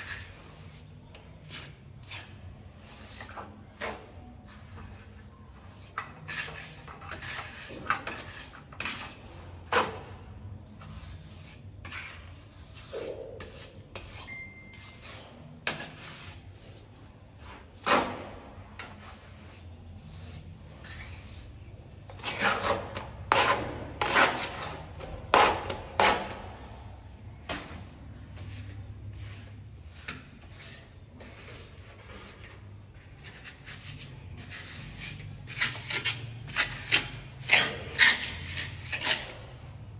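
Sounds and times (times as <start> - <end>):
hand tools scraping brick: 28.6 - 39.6.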